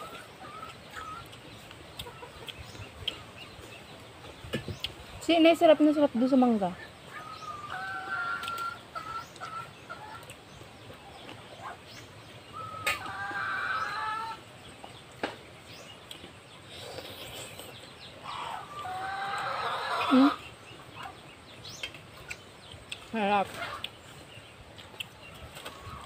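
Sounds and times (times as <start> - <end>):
chickens clucking: 0.0 - 26.0.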